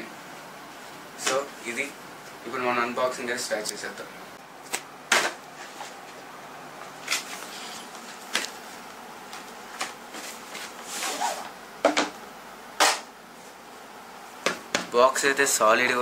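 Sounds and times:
sliding rustle: 0:10.1 - 0:11.5.

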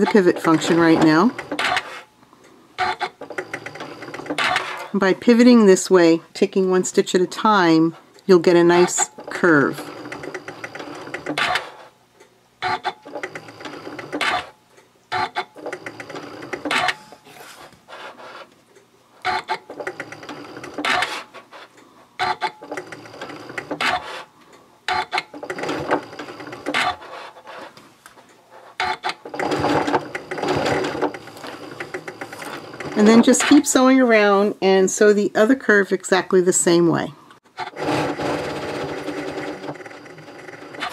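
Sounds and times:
sewing machine stitching: 0:00.0 - 0:02.1, 0:02.8 - 0:05.0, 0:08.5 - 0:11.9, 0:12.6 - 0:18.5, 0:19.2 - 0:24.3, 0:24.9 - 0:27.7, 0:28.7 - 0:33.8, 0:37.6 - 0:40.9
sewing machine clicks: 0:02.8 - 0:04.9, 0:09.0 - 0:11.8, 0:24.9 - 0:27.1, 0:28.8 - 0:33.6.

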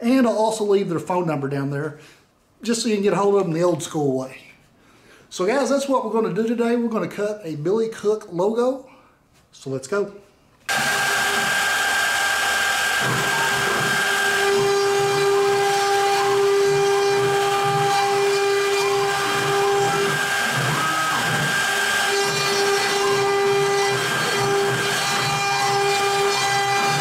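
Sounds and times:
bit cutting into wood: 0:10.7 - 0:27.0
router spindle whining: 0:10.7 - 0:27.0.

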